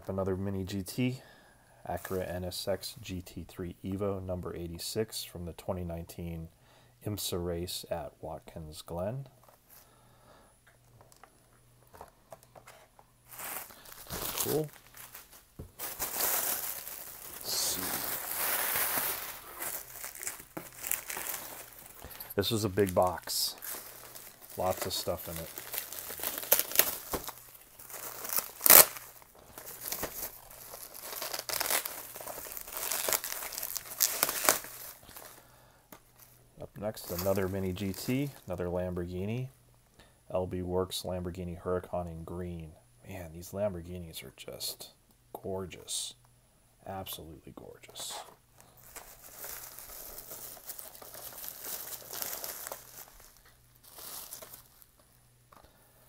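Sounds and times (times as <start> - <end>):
bubble wrap crinkling: 11.9 - 38.6, 48.5 - 55.6.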